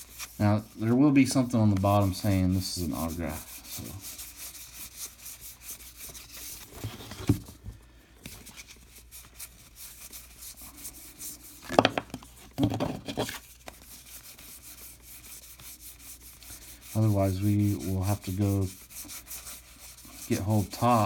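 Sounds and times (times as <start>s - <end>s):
cards flicking and rustling: 11.6s - 14.9s.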